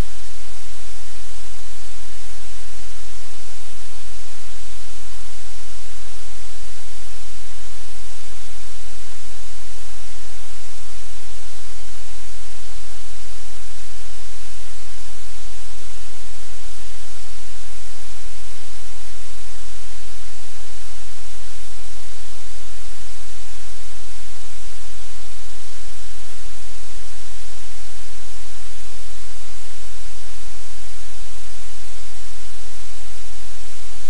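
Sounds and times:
static hiss: 0:00.0 - 0:34.0.

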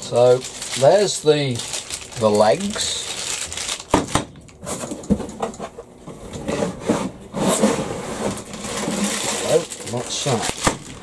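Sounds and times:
plastic and cardboard rustling: 0:00.0 - 0:11.0.

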